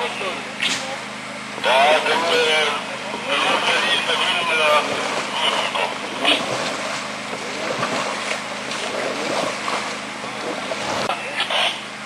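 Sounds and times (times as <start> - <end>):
stream water flowing: 3.4 - 11.1
water splashes: 3.4 - 11.1.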